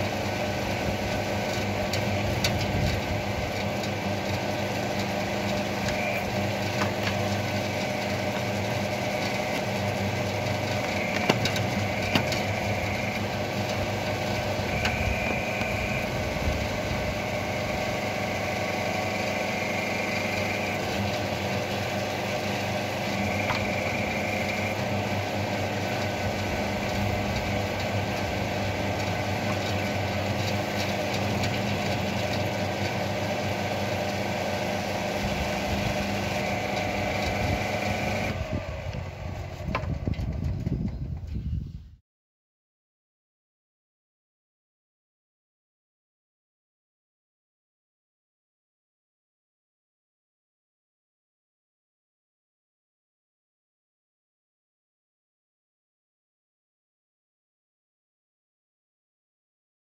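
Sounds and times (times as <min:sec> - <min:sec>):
hydraulic drive running: 0:00.0 - 0:41.2
high hydraulic whine: 0:00.0 - 0:42.0.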